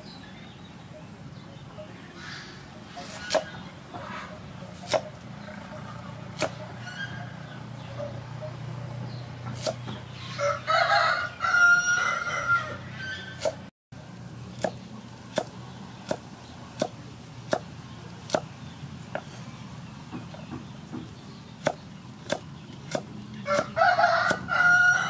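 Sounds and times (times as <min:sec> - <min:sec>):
knife chopping on wooden board: 0:03.0 - 0:03.5, 0:04.8 - 0:05.1, 0:06.4 - 0:06.6, 0:09.5 - 0:10.0, 0:14.6 - 0:17.7, 0:18.3 - 0:18.5, 0:20.1 - 0:24.5
rooster crowing: 0:10.2 - 0:13.3, 0:23.4 - 0:25.0.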